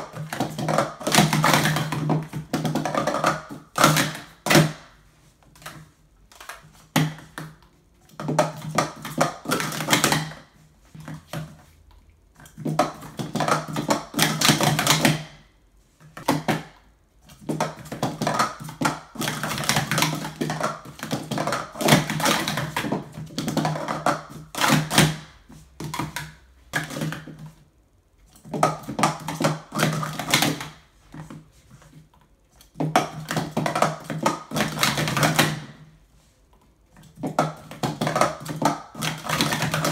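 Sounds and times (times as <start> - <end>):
plastic cups clattering: 0.0 - 11.8, 12.4 - 15.4, 16.1 - 27.7, 28.3 - 35.9, 37.0 - 39.9.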